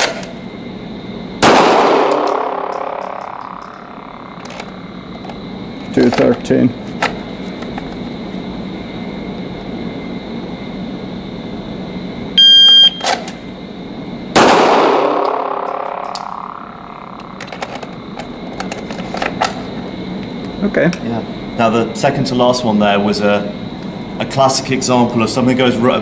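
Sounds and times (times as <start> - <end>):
pistol shot ringing indoors: 1.4 - 4.8, 14.3 - 17.6.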